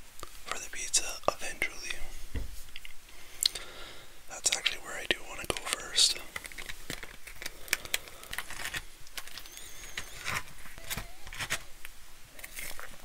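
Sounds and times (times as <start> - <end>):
bread crust crackling: 5.4 - 13.0.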